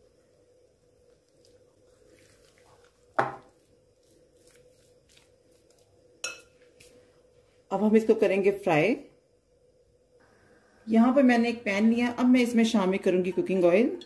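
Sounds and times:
spoon scraping and squishing chicken: 1.1s - 7.1s.

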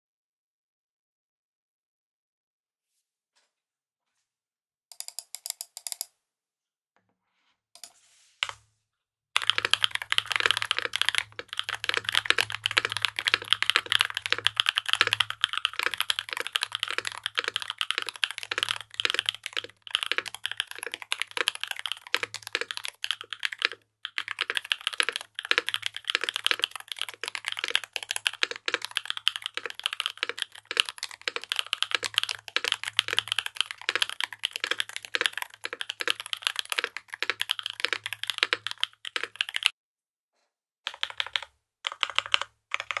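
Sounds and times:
mechanical keyboard typing: 4.9s - 6.1s, 9.4s - 39.7s, 40.9s - 43.0s.

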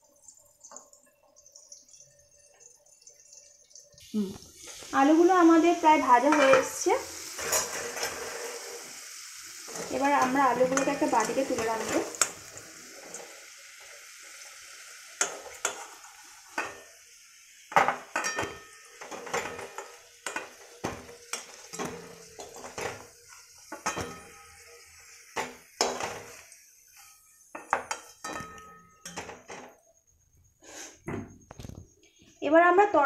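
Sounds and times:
hot oil sizzling: 0.0s - 30.0s
metal spoon scraping metal pan: 6.0s - 12.5s.

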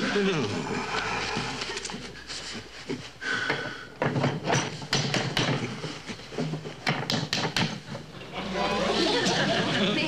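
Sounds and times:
hard objects tapping and knocking: 3.4s - 8.1s.

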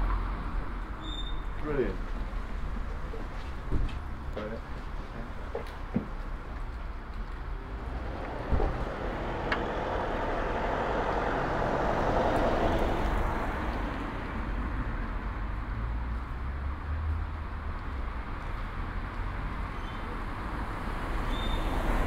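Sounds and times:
low rumble of traffic: 0.0s - 22.0s
car passing by: 7.3s - 14.8s, 20.4s - 22.0s.

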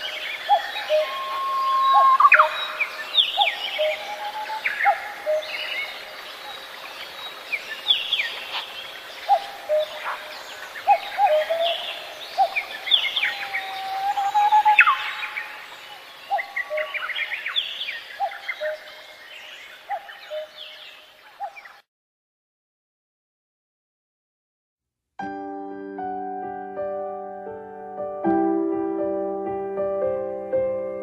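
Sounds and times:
birds chirping and calling: 0.0s - 21.8s.

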